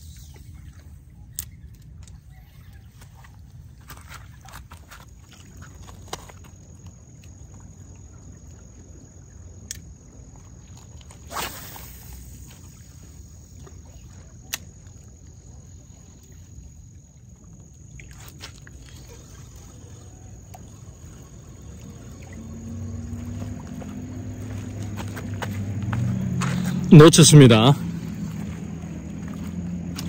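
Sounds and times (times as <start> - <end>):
insects chirring: 0.0 - 30.0.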